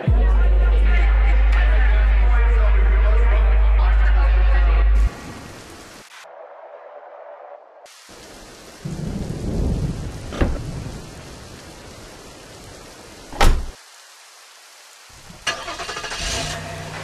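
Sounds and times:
steady rain: 0:00.0 - 0:17.0
thunder rumbling: 0:08.2 - 0:13.6
sharp thunder crack: 0:08.8 - 0:11.3.

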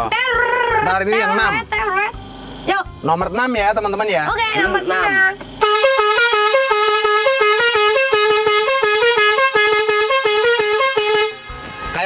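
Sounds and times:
musical bus horn melody: 0:04.6 - 0:12.0.

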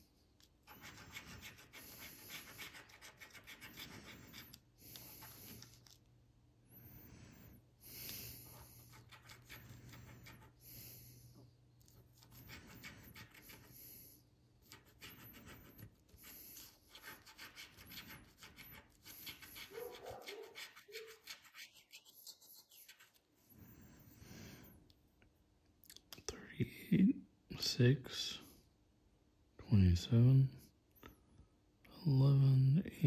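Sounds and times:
coin scraping lottery ticket: 0:00.6 - 0:06.0, 0:14.7 - 0:21.6.

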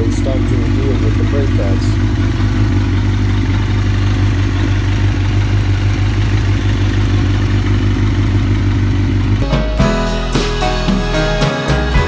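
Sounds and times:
motorcycle engine idling: 0:00.0 - 0:09.4.

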